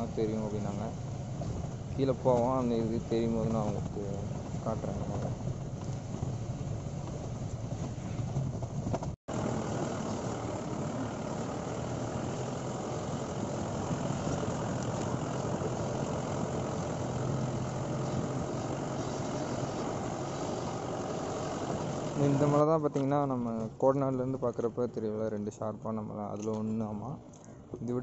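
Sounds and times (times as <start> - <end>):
vehicle engine running: 0.0 - 27.2
tyres rolling over loose stones: 0.1 - 20.3.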